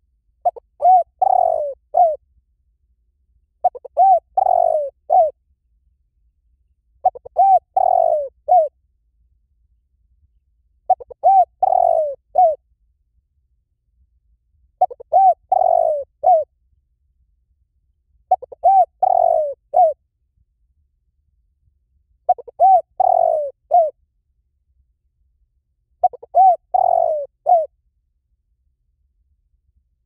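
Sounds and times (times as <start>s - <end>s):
dove cooing: 0.4s - 2.2s, 3.6s - 5.3s, 7.0s - 8.7s, 10.9s - 12.6s, 14.8s - 16.5s, 18.3s - 20.0s, 22.3s - 23.9s, 26.0s - 27.7s.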